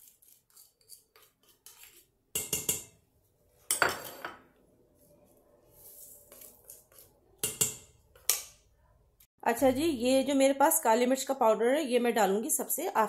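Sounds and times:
utensils clinking on metal pot: 0:03.7 - 0:04.4.

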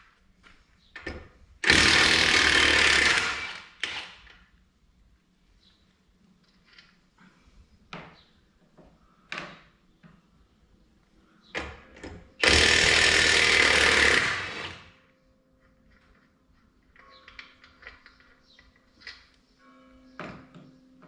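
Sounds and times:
power tool running: 0:01.6 - 0:04.0, 0:12.4 - 0:14.9.

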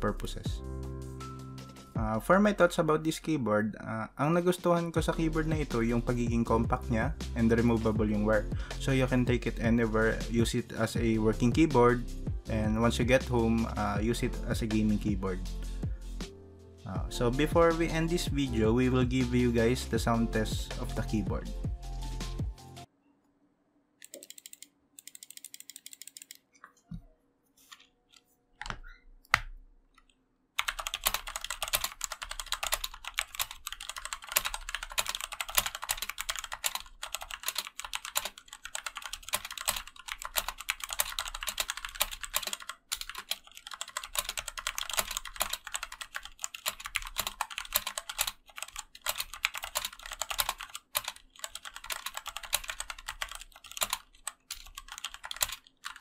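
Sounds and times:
mechanical keyboard typing: 0:24.0 - 0:26.4, 0:30.6 - 0:56.0
keyboard clicks: 0:24.0 - 0:26.9, 0:27.7 - 0:56.0.

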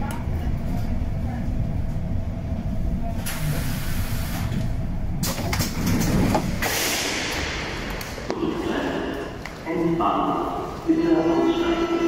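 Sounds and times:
train low rumble: 0:00.0 - 0:06.6, 0:07.2 - 0:12.0
air hiss: 0:03.2 - 0:04.6.

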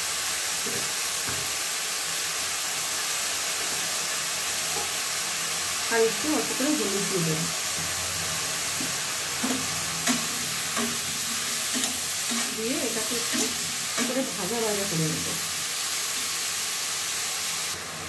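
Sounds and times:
mushrooms sizzling in hot oil: 0:00.0 - 0:18.0
metal spatula scraping a pan: 0:08.8 - 0:14.4.

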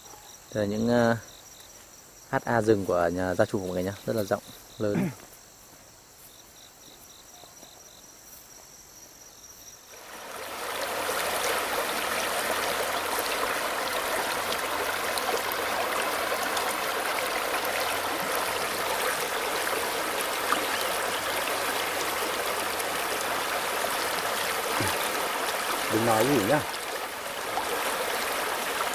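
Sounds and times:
insects chirping: 0:00.0 - 0:28.9
stream rushing over stones: 0:09.9 - 0:28.9.

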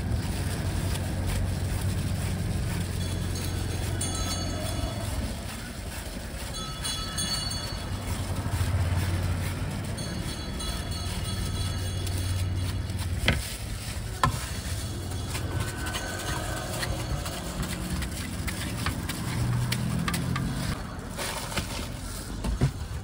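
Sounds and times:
street traffic rumble: 0:00.0 - 0:23.0
knife clicking and scraping fruit: 0:15.2 - 0:20.8.

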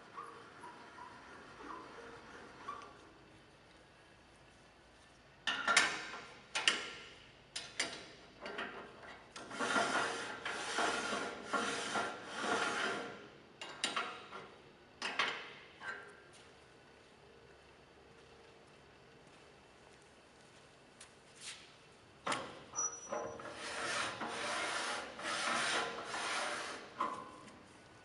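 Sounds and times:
tailstock scraping along lathe bed: 0:09.4 - 0:13.2, 0:23.4 - 0:27.1.

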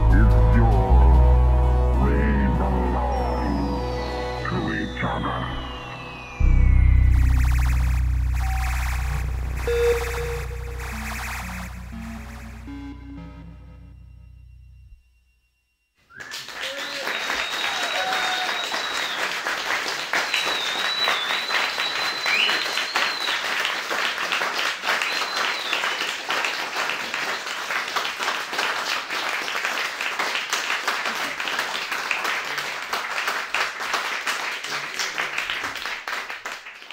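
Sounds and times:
high whistling: 0:03.0 - 0:19.4, 0:20.2 - 0:23.6, 0:24.9 - 0:26.1
audience applauding: 0:16.1 - 0:36.9.

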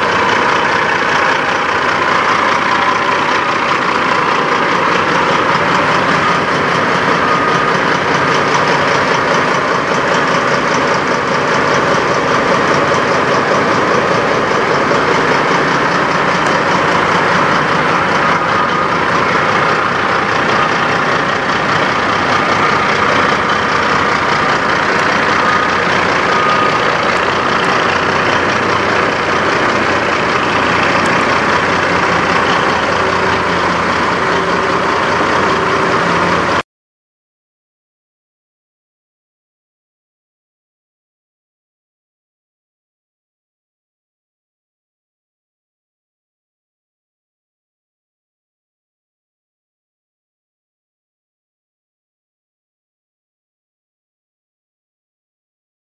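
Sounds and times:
diesel truck engine idling: 0:00.0 - 0:36.6.

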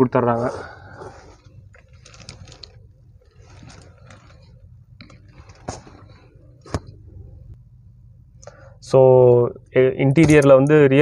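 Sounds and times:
camera handling rustling: 0:01.3 - 0:07.0.

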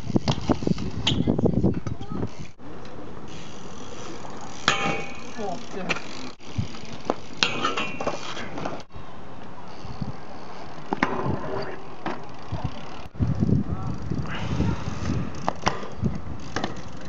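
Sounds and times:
bike knocking on metal rail: 0:04.6 - 0:05.4
metallic scrape ringing: 0:04.6 - 0:05.6, 0:07.4 - 0:08.4.

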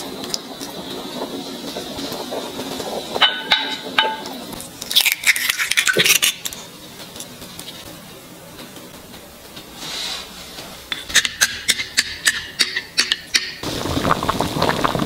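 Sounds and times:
eggshells crackling open: 0:04.6 - 0:06.6.

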